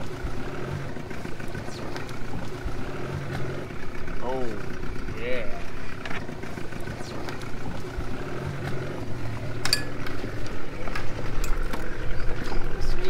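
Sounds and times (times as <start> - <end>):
outboard motor idling: 0.0 - 13.0
sharp metallic clinks: 9.6 - 10.0.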